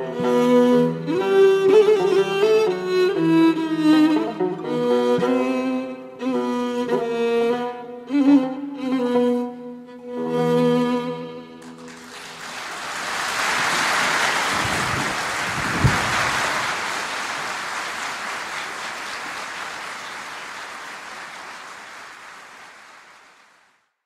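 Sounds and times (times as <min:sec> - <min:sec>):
audience applauding: 0:11.6 - 0:23.9.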